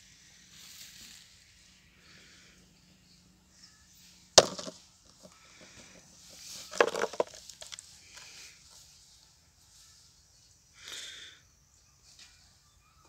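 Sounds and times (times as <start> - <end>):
plastic bottle crackling: 4.4 - 4.8, 6.6 - 7.8
plastic bottle knocking on brick: 4.4 - 4.8, 6.7 - 7.4.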